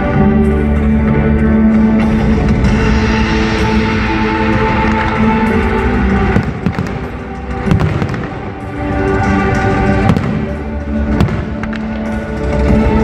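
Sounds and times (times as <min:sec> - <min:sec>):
music with long held tones: 0:00.0 - 0:13.0
fireworks bangs: 0:06.2 - 0:08.7, 0:09.9 - 0:12.0.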